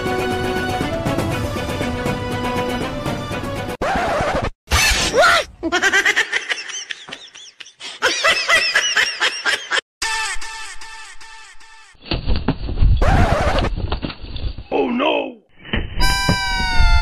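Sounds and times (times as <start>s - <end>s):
rising and falling laughter: 5.6s - 11.8s.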